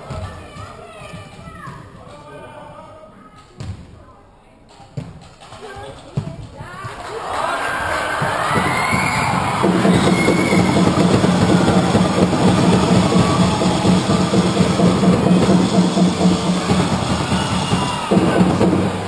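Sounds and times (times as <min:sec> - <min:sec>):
spectators drumming: 0:06.4 - 0:19.0
spectators clapping: 0:06.8 - 0:19.0.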